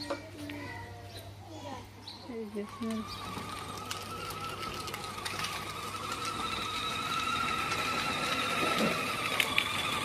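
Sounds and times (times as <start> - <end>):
electric motor whining: 2.3 - 10.0.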